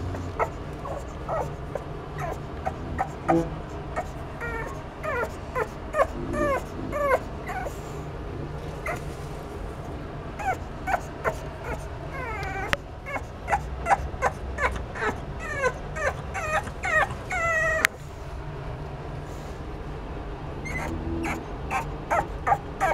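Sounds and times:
puppy whimpering and yipping: 0.0s - 7.8s, 8.8s - 9.1s, 10.4s - 18.0s, 20.6s - 22.9s.

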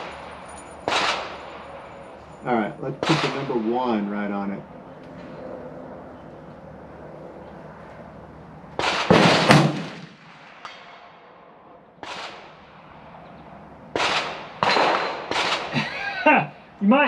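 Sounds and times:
rifle shots: 0.0s - 1.9s, 3.0s - 3.6s, 8.8s - 11.3s, 12.0s - 12.8s, 13.9s - 15.8s.

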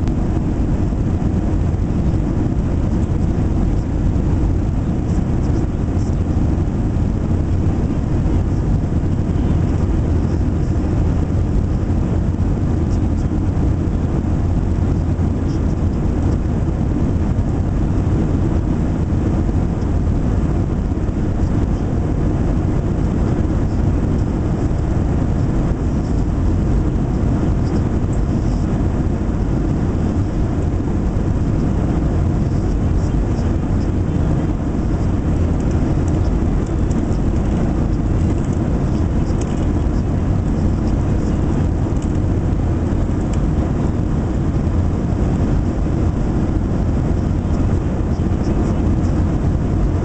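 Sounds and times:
airplane cabin rumble: 0.0s - 50.0s.

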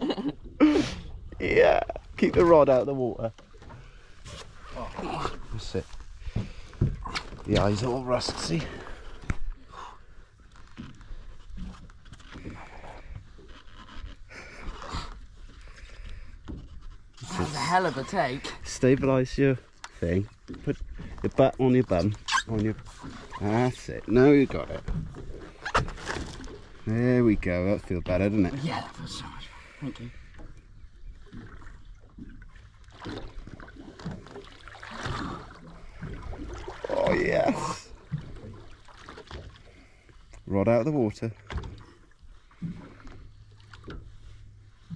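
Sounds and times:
water lapping against boat hull: 0.0s - 44.9s.

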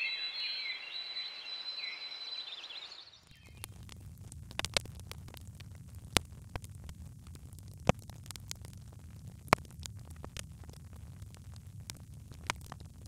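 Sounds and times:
burning logs popping: 3.2s - 13.0s
light fire crackling: 3.2s - 13.0s
low rumble of flames: 3.2s - 13.0s.

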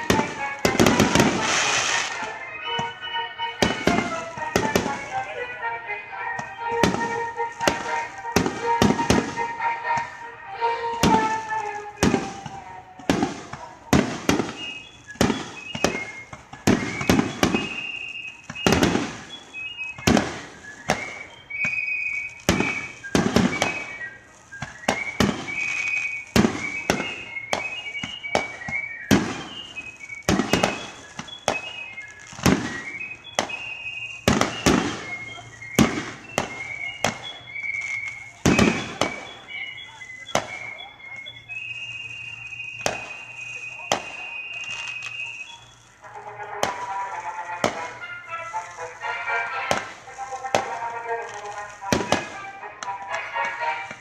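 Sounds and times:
firework shells bursting: 0.0s - 2.9s, 11.0s - 40.6s, 46.5s - 54.0s.

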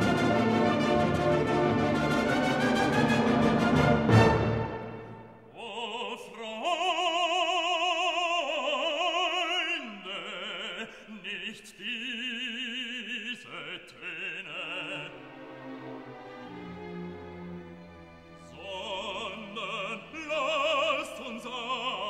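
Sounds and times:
classical accompaniment: 0.0s - 5.5s, 14.8s - 22.0s
operatic voice singing: 5.5s - 15.5s, 18.4s - 22.0s.

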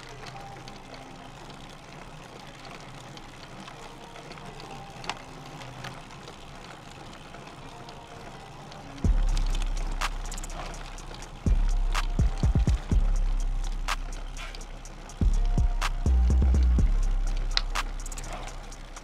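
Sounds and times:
soft music with held notes: 0.0s - 19.0s
loud music with deep bass: 9.1s - 19.0s.

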